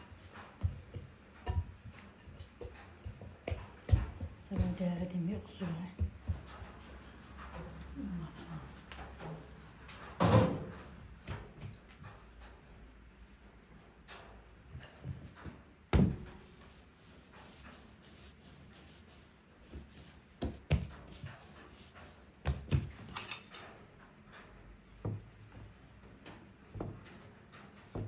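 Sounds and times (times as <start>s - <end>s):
dough rubbing on wooden board: 16.3s - 22.7s.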